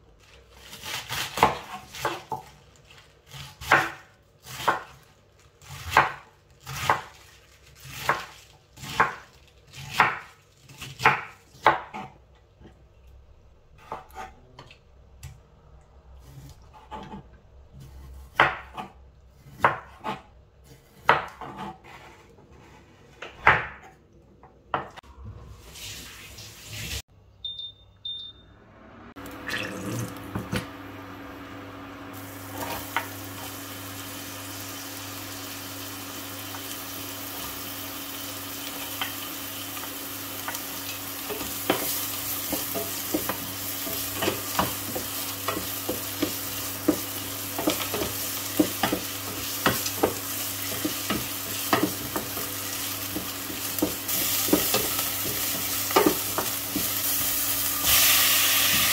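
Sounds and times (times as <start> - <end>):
knife chopping on wooden board: 18.0 - 22.2, 23.2 - 24.0
short beeps: 27.4 - 28.6
onion sizzling in oil: 31.4 - 58.9.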